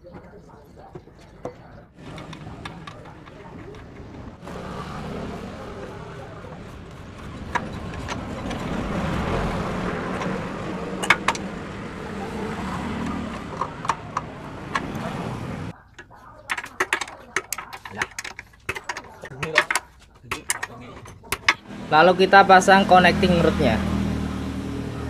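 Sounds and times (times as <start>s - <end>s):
engine running: 2.0s - 15.7s, 21.3s - 25.0s.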